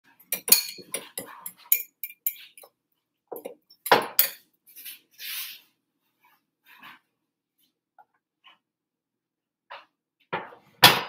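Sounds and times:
utensil clinking against glass bowl: 0.2s - 2.7s, 3.4s - 4.4s
soft scraping: 4.7s - 7.1s.

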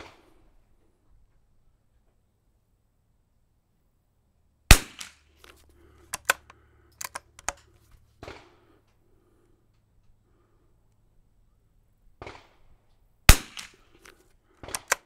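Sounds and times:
rifle shot: 4.7s - 5.3s, 8.2s - 8.7s, 12.2s - 15.0s
rifle bolt clicks: 4.9s - 7.8s, 13.3s - 15.0s.

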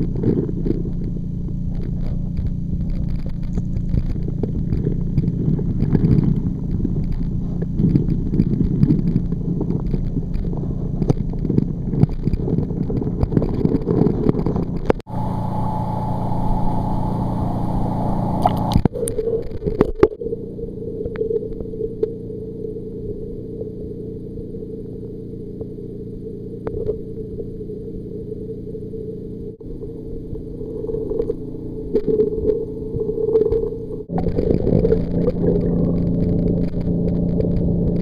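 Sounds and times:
knocks and crackles: 0.0s - 15.1s, 32.0s - 38.0s
low steady hum: 0.0s - 38.0s
low underwater rumble: 0.0s - 38.0s
open-air hiss: 15.1s - 18.8s.

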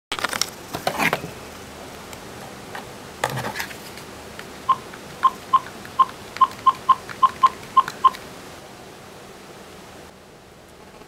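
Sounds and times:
short electronic beeps: 4.7s - 8.2s.

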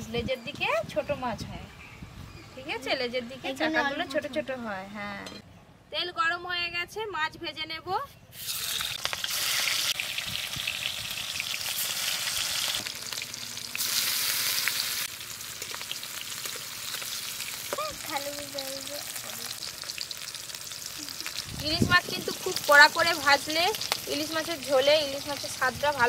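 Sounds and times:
fish sizzling in hot oil: 8.4s - 26.0s.

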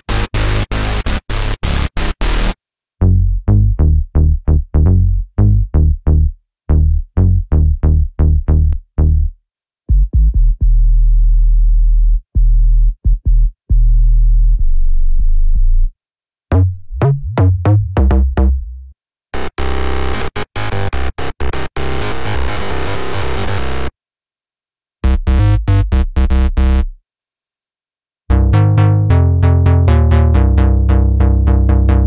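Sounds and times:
distorted synth bass: 0.0s - 9.3s, 16.5s - 23.9s, 25.0s - 27.0s, 28.3s - 32.0s
plucked synth bass notes: 0.0s - 9.3s, 9.9s - 15.9s, 16.5s - 23.9s, 25.0s - 27.0s, 28.3s - 32.0s
deep boom bass notes: 0.1s - 9.3s, 9.9s - 15.9s, 16.5s - 18.9s, 28.3s - 32.0s.

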